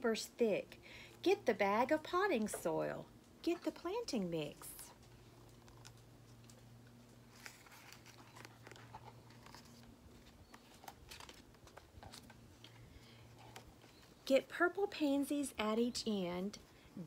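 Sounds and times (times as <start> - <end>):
book pages rustling and clicking: 5.1 - 14.2.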